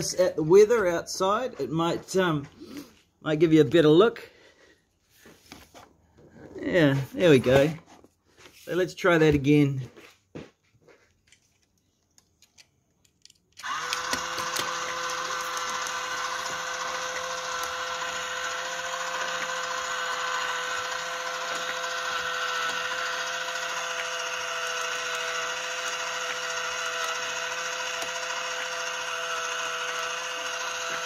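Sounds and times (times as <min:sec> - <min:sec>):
model engine whirring: 0:13.6 - 0:31.0.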